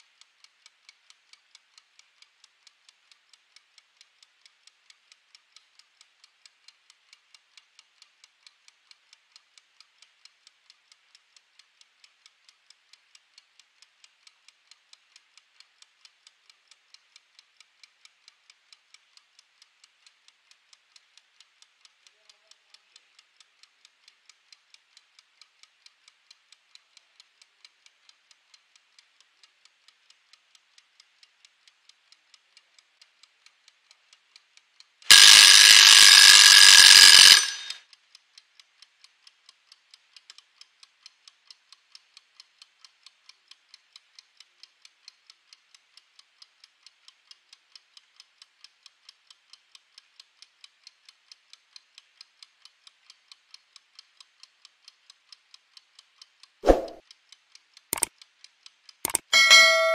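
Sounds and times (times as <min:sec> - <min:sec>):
kitchen timer ticking: 0:00.0 - 0:38.2, 0:38.9 - 0:59.9
timer bell ringing: 0:35.1 - 0:37.8, 0:59.1 - 0:59.9.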